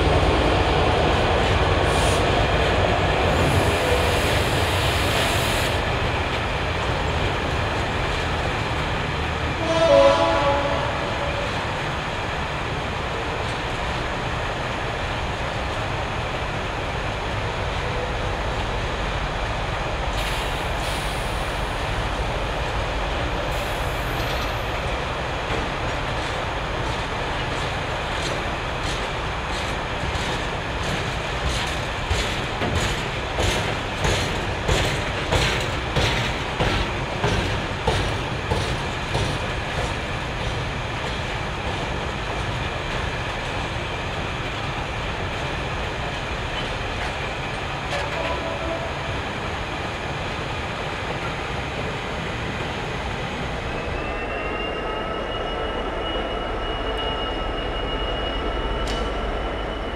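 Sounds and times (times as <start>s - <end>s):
train wagons rumbling past: 0.0s - 59.9s
train horn blast: 9.5s - 11.4s, 48.0s - 49.1s.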